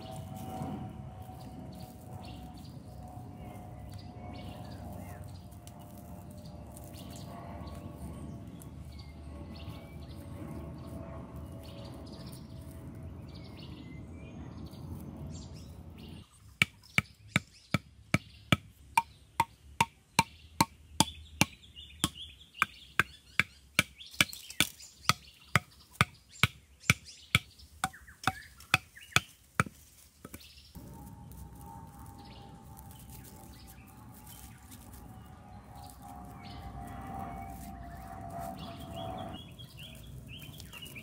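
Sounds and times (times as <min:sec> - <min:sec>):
wooden club knocking bamboo stakes: 0:16.5 - 0:30.4.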